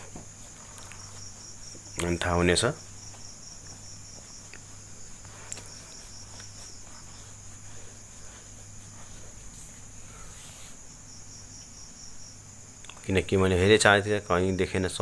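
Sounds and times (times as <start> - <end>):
insects chirring: 0.0 - 15.0
low steady hum: 0.0 - 15.0.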